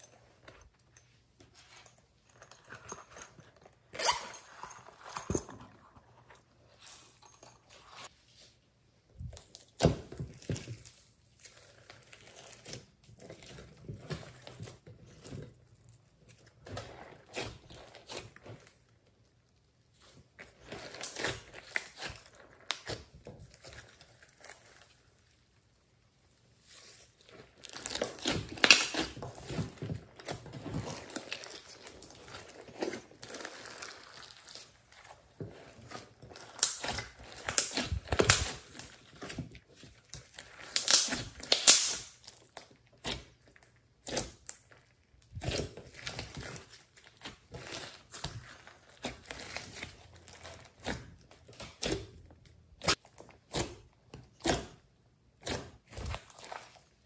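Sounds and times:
slime crackling and popping: 27.5 - 29.5, 35.9 - 52.0.

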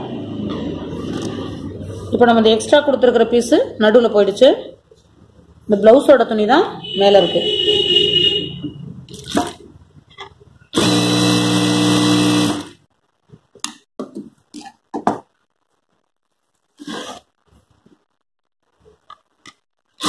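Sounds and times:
sewing machine stitching: 10.8 - 12.8.

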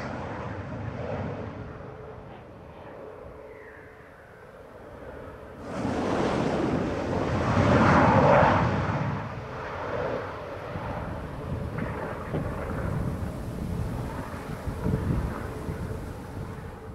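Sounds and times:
jet engines rushing: 0.0 - 16.9.

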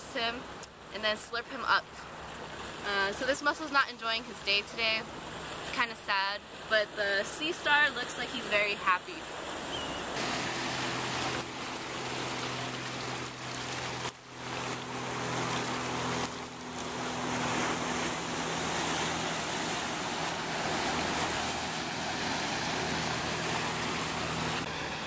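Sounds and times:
low motor hum: 9.8 - 25.0.

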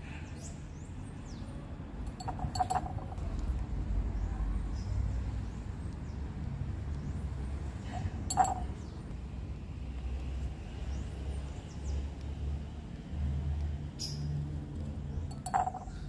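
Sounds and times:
tweezers clinking on glass jar: 2.1 - 3.2, 7.9 - 8.7, 15.3 - 16.0.

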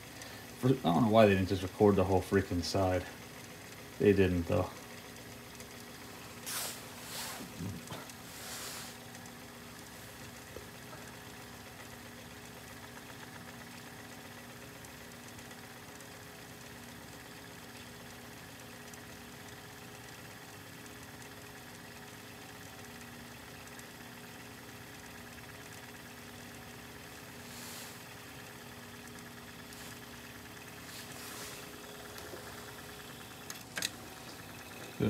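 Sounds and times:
cassette deck hum: 0.0 - 35.0
soft rustles: 6.5 - 9.0, 30.8 - 32.6.

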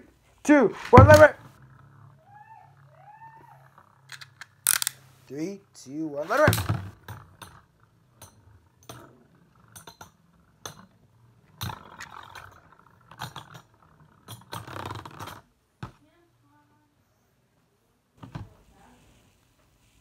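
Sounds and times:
rattling clatter of spinning tops: 0.8 - 15.6
spinning tops clicking and knocking: 3.6 - 15.5.

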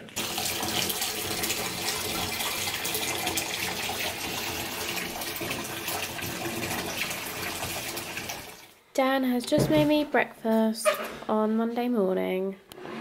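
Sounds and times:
water pouring into bathtub: 0.0 - 8.8.

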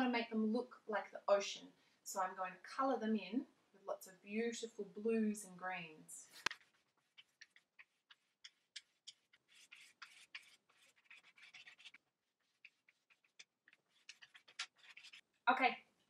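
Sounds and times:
crayon scratching on paper: 6.3 - 15.6.

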